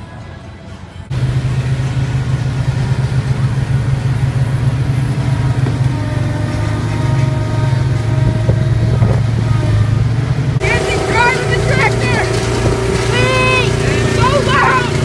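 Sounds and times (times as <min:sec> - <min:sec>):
road roller engine droning: 0:00.0 - 0:15.0.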